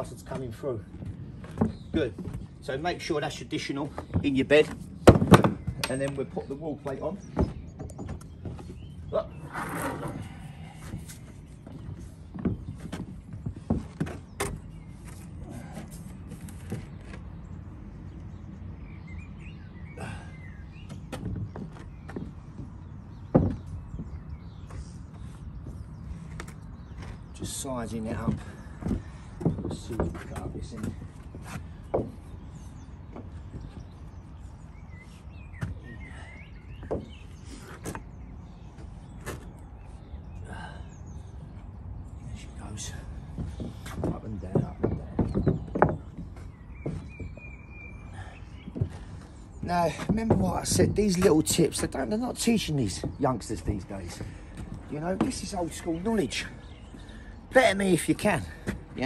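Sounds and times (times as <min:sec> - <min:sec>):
timber knocking and bumping: 0:00.0 - 0:17.4, 0:20.8 - 0:34.8, 0:35.5 - 0:39.8, 0:41.4 - 0:59.0
bird chirping: 0:00.0 - 0:59.0.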